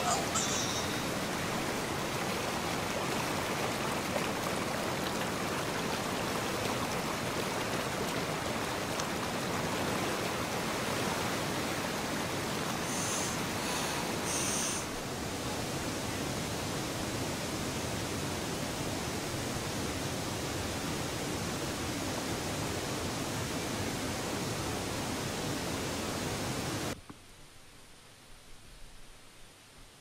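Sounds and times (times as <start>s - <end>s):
high chirps: 0.0s - 1.2s
water rushing over rocks: 0.0s - 15.8s.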